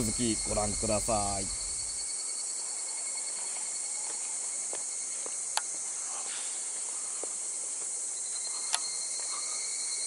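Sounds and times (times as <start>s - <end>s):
insects chorus: 0.0s - 10.0s
faint ticks: 5.5s - 5.8s, 8.5s - 9.4s.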